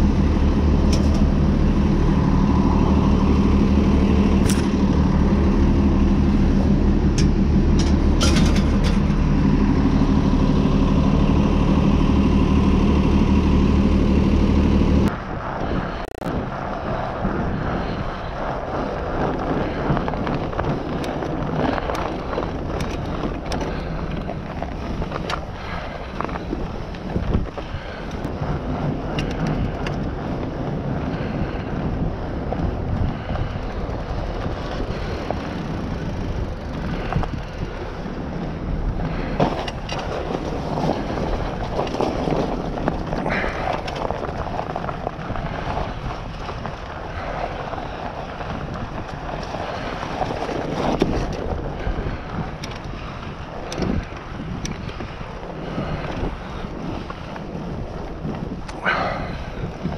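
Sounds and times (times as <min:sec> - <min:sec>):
tyres rumbling on trail: 0:00.0 - 0:59.9
wind buffeting microphone: 0:00.0 - 0:59.9.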